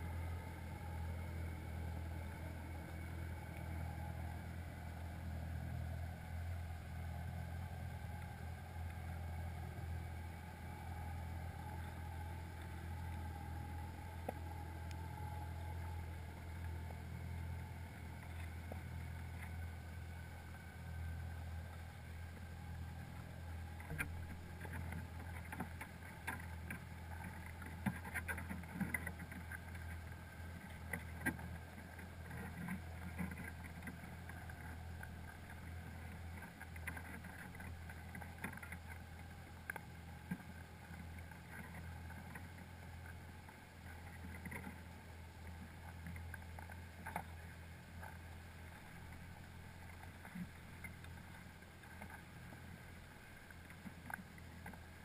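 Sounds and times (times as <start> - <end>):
underwater low hum: 0.0 - 55.0
clicks and light knocks: 23.6 - 55.0.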